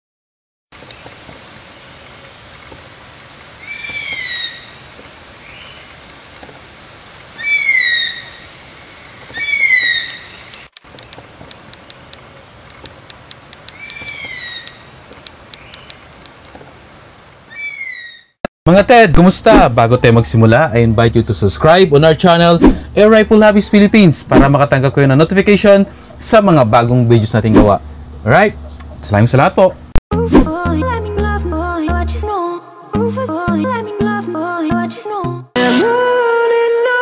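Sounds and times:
bird call: 3.6s - 5.9s, 7.4s - 12.5s, 13.6s - 16.1s, 17.5s - 18.4s
light rapid clicks: 10.0s - 16.6s.

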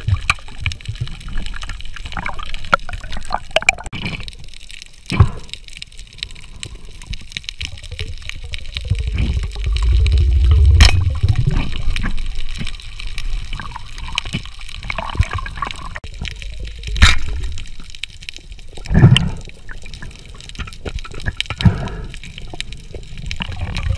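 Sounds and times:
crackling clicks: 0.0s - 23.9s
water sloshing underwater: 0.0s - 23.9s
low rumble: 8.3s - 14.1s
sharp crack: 8.7s - 12.8s, 16.8s - 17.9s.

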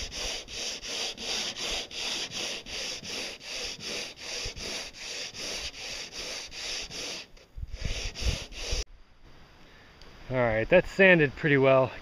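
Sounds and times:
hand sanding with sandpaper: 0.0s - 8.8s.

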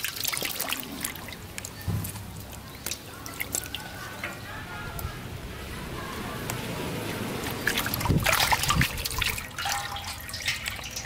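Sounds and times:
water splashing and trickling: 0.0s - 11.0s.

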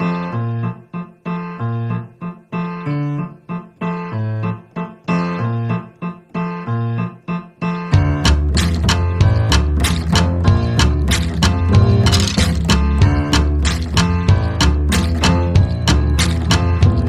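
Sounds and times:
piano chords over bass line: 0.0s - 17.0s
percussive hits: 8.0s - 17.0s.

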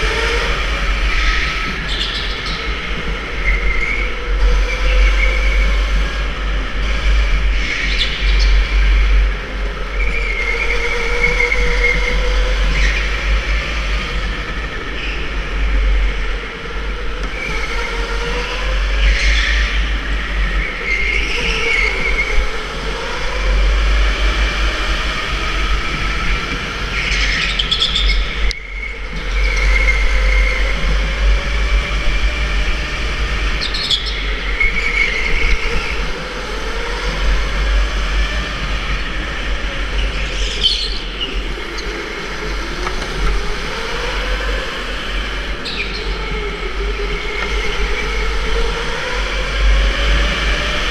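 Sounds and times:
electric go-kart motor whine: 0.0s - 50.9s.

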